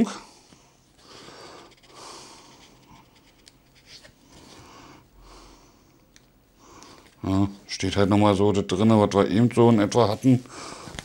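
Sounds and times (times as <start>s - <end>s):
quiet breathing: 0.0s - 7.3s, 10.4s - 11.0s.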